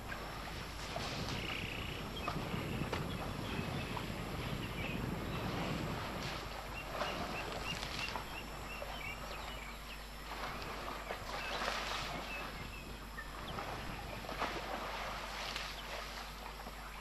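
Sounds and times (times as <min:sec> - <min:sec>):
elephant splashing in mud: 0:06.0 - 0:08.4, 0:13.5 - 0:16.3.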